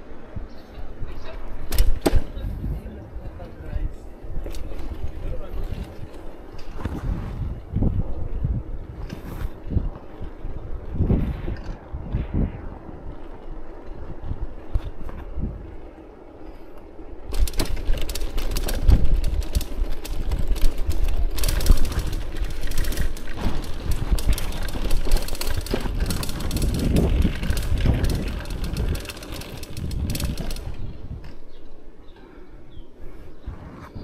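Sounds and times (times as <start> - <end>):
wheels rattling over cobblestones: 17.0 - 32.0.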